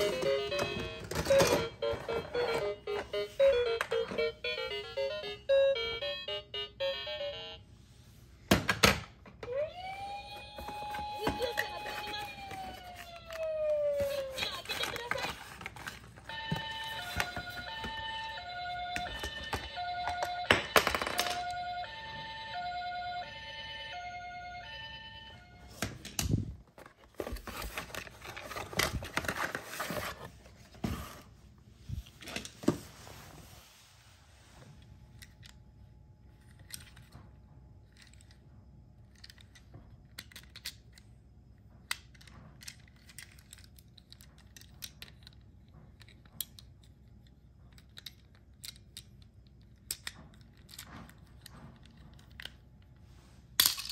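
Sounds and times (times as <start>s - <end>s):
toy ambulance siren: 0.0s - 7.6s, 9.4s - 15.3s, 16.2s - 25.8s
plastic toys clicking: 39.0s - 41.1s, 41.8s - 52.6s.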